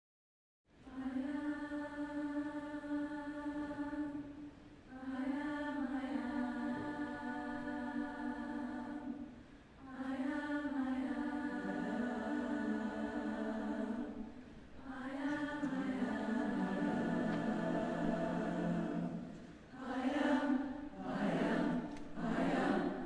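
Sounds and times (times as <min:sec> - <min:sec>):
youth choir singing unaccompanied: 0:00.8 - 0:23.0.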